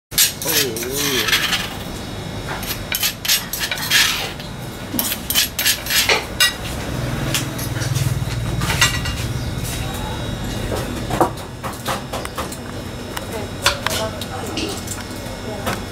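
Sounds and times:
dishes and utensils clinking: 0.2 - 1.8, 2.5 - 6.7, 7.3 - 9.4.

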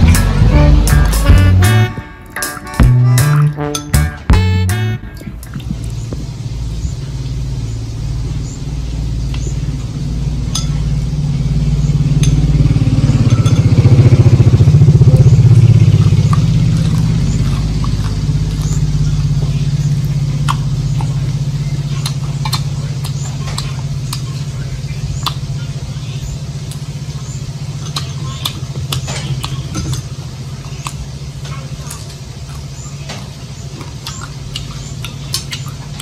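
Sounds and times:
engine droning: 0.0 - 36.0
crunchy food being chewed: 5.0 - 7.0, 12.2 - 36.0.

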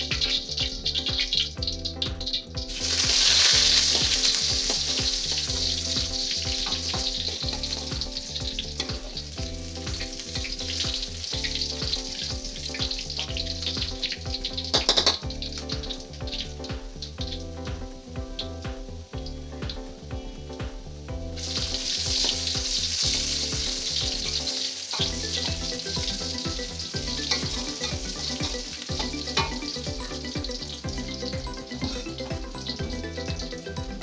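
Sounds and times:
spatula stirring in wok: 0.0 - 15.7
garlic sizzling in hot oil: 0.0 - 34.0.

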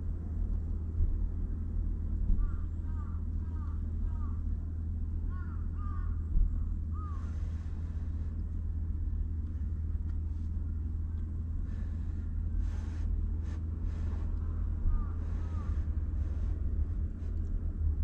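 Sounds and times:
steady low rumble: 0.0 - 18.0
bird calling: 5.3 - 6.2, 6.9 - 7.4, 14.9 - 15.9.

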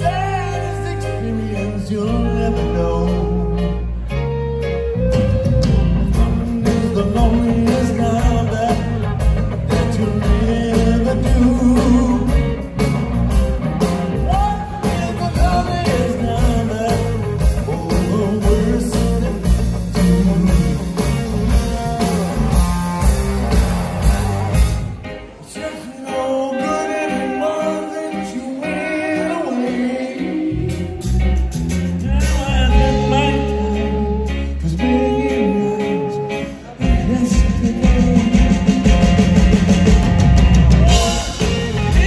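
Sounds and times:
person singing: 0.0 - 12.8, 14.2 - 23.1, 25.3 - 42.0
live rock band playing: 0.0 - 42.0.

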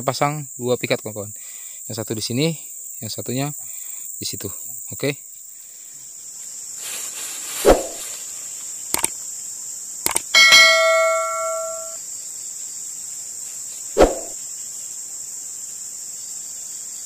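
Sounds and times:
insects droning: 0.0 - 17.0
mouse clicks: 10.1 - 10.3
bell chime ringing: 10.4 - 12.0
whoosh: 14.0 - 14.4.

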